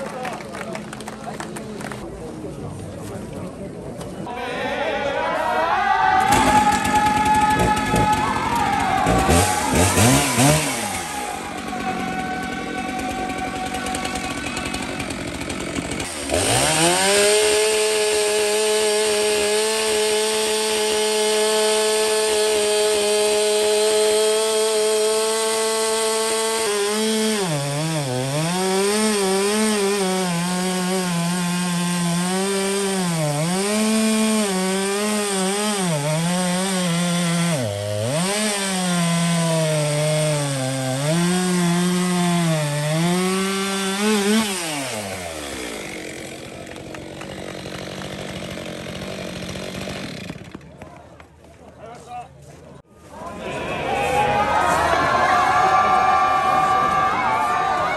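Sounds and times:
chainsaw cutting log: 0:06.2 - 0:51.5.

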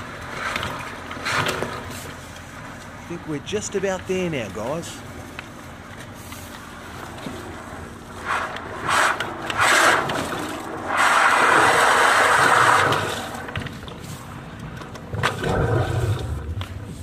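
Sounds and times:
low rumble: 0:06.8 - 0:17.0
water rushing and gurgling in pipe: 0:08.2 - 0:13.6, 0:15.1 - 0:16.6.

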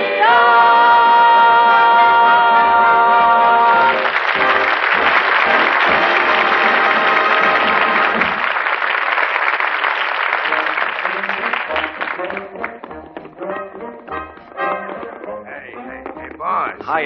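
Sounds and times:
audience applauding: 0:03.6 - 0:12.9
rock and roll music: 0:10.6 - 0:17.0.

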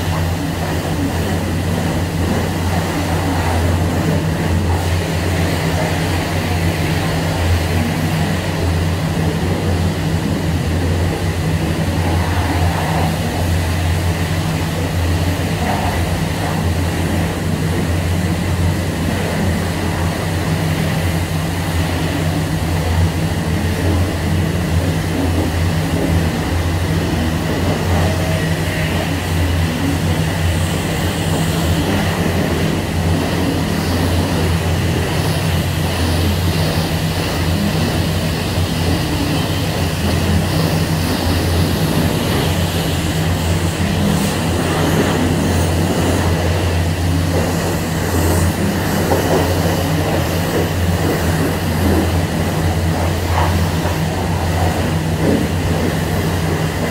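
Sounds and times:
high-pressure water spray hiss: 0:00.0 - 0:56.9
pressure washer pump hum: 0:00.0 - 0:56.9.

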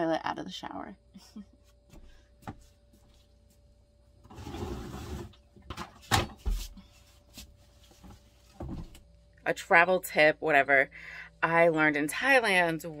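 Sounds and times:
rustling scrape: 0:04.2 - 0:05.4.

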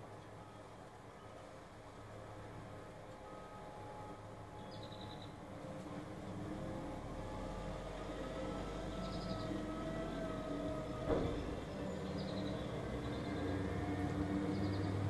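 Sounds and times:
truck engine hum: 0:00.0 - 0:15.0
bird chirps: 0:04.6 - 0:05.4, 0:11.8 - 0:13.6.

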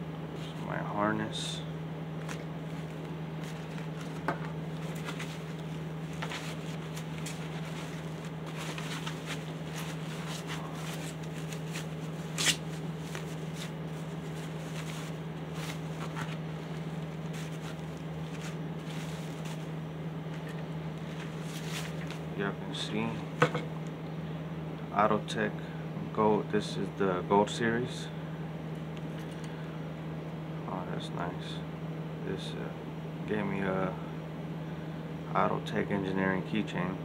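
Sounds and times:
low hum: 0:01.5 - 0:22.6
foam wrap crinkling: 0:02.2 - 0:22.3.

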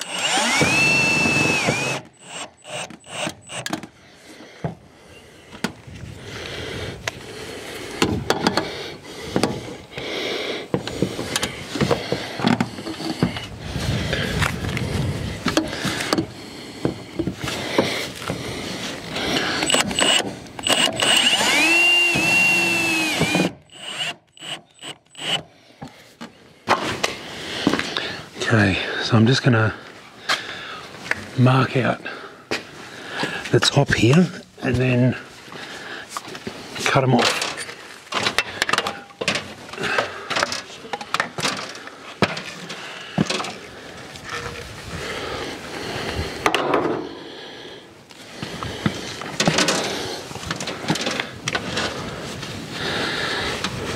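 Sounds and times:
cladding being cut with clicks: 0:00.0 - 0:03.9, 0:19.4 - 0:25.5
cordless drill driving screw: 0:00.0 - 0:03.9, 0:19.0 - 0:25.5.

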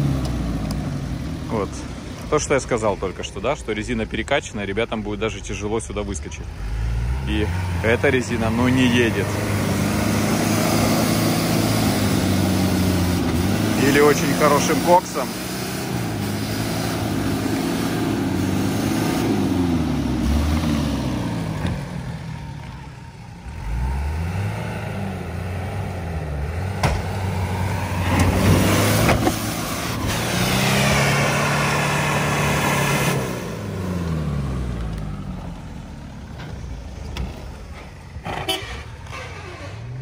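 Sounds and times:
off-road engine revving: 0:00.0 - 0:40.0
commentator talking: 0:07.2 - 0:09.5, 0:13.7 - 0:15.4.

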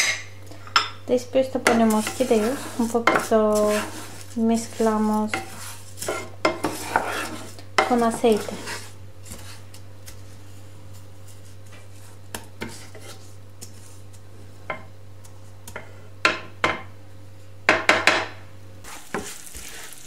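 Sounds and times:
wooden spoon scraping a pan: 0:01.4 - 0:16.2, 0:18.8 - 0:20.0.

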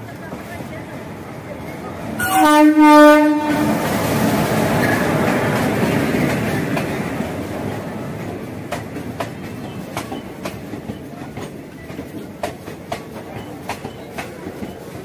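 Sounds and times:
train wheel rumble: 0:00.0 - 0:15.0
wheels clicking over rail joints: 0:04.7 - 0:15.0.

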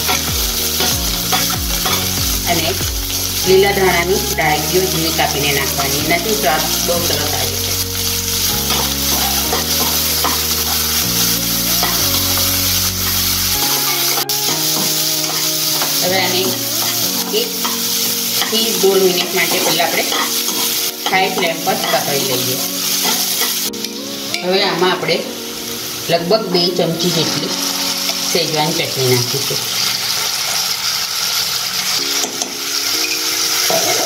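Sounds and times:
vegetables sizzling in oil: 0:00.0 - 0:34.0
metal spatula scraping pan: 0:08.5 - 0:11.1.

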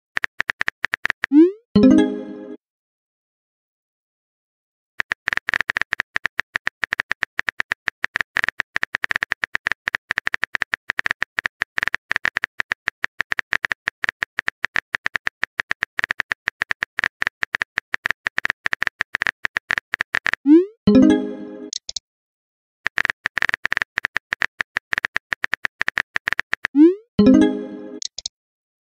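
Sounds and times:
phone keyboard typing clicks: 0:00.2 - 0:01.4, 0:05.0 - 0:20.4, 0:21.7 - 0:22.0, 0:22.9 - 0:27.4, 0:28.0 - 0:28.3.

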